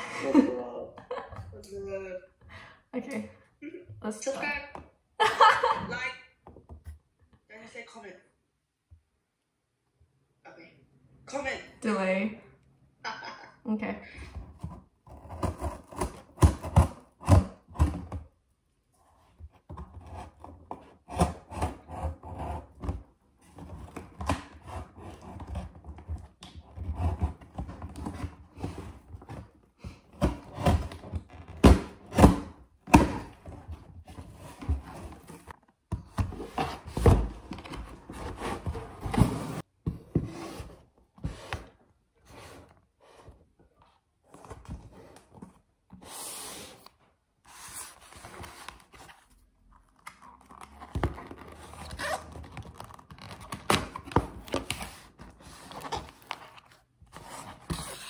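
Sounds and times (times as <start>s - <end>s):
rustling and scraping: 33.3s - 49.6s
cardboard box knocks and thunks: 35.9s - 40.6s.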